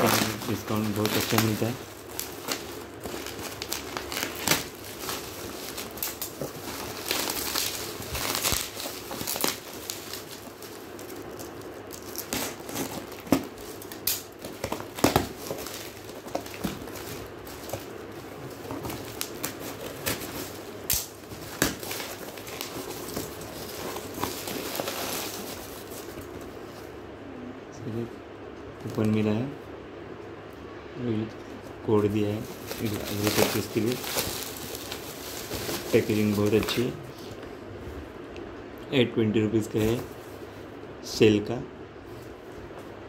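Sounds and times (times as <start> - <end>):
bubble wrap crinkling: 0.0 - 26.7, 31.8 - 37.0, 39.6 - 40.5.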